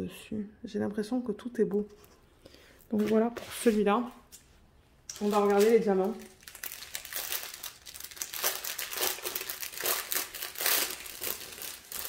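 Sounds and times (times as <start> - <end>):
plastic bags crinkling: 5.1 - 12.0.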